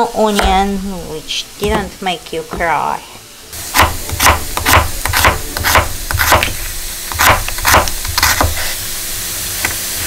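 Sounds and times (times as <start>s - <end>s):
knife slicing onion on board: 3.7s - 8.8s.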